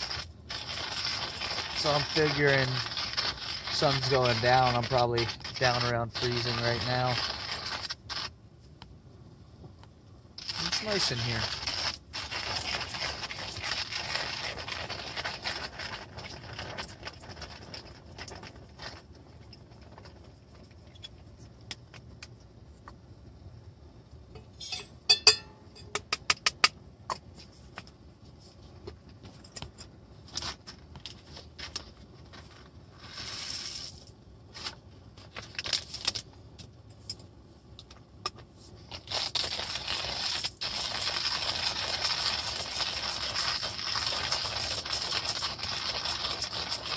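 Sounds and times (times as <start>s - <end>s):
small metal items scraping: 0.0s - 8.3s, 10.4s - 21.5s, 29.3s - 36.2s
steady hiss: 0.0s - 29.0s, 30.2s - 36.3s, 38.5s - 46.9s
sharp metal clinks: 24.4s - 26.0s.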